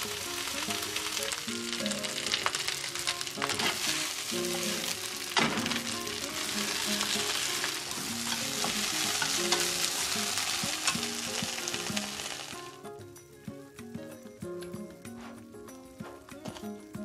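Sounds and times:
greens sizzling in a frying pan: 0.0s - 13.0s
chopsticks clacking: 2.0s - 12.5s.

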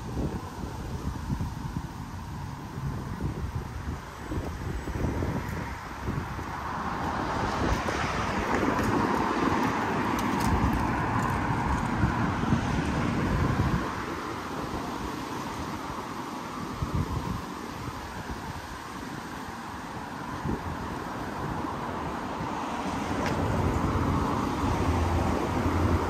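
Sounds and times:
wind rumbling on microphone: 0.0s - 26.0s
vehicle passing close by: 4.4s - 17.1s, 20.4s - 26.0s.

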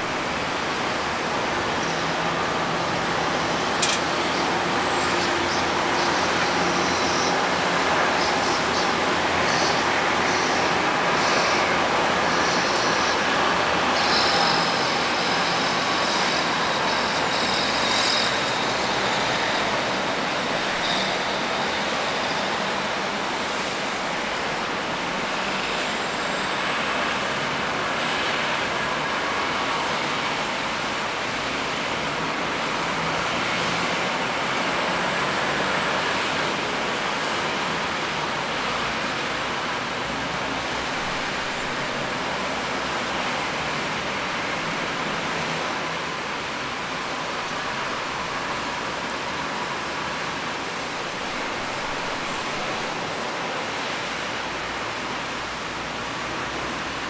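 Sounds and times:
rain on a street: 0.0s - 57.0s
traffic on wet road: 0.0s - 57.0s
high squeal: 1.6s - 30.5s.

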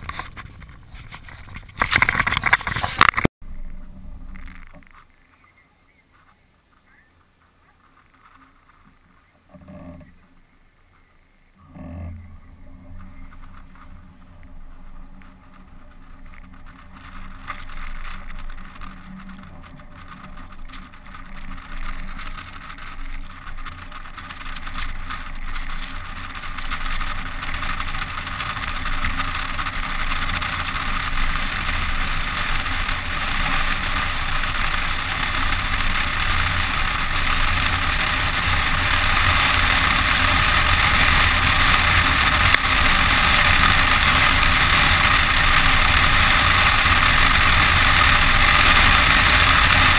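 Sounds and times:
car engine hum: 3.4s - 49.9s
rushing wind: 11.8s - 49.9s
tyres crunching through snow: 12.2s - 49.9s.

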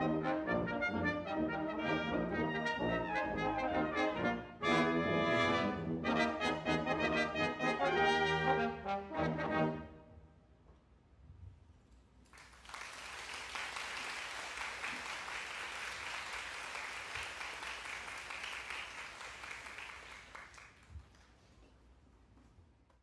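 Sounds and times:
audience applauding: 12.3s - 21.4s.

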